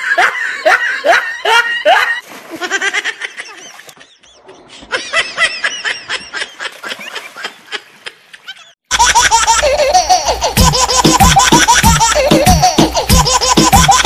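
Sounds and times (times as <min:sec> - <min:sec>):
high-pitched giggly laughter: 0:00.0 - 0:14.0
loud music: 0:10.6 - 0:14.0.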